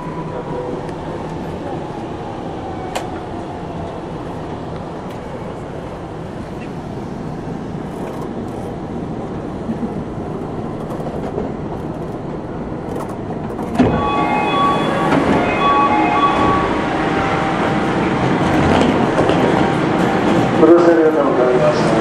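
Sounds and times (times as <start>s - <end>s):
monorail cabin running noise: 0.0s - 22.0s
short high tones: 13.8s - 17.8s.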